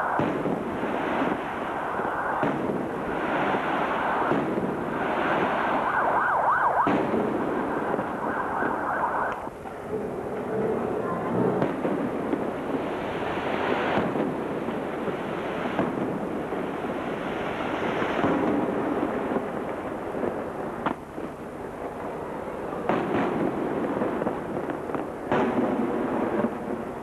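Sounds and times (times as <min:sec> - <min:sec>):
fireworks crackling and rumbling: 0:00.0 - 0:27.0
sharp firework reports: 0:00.0 - 0:27.0.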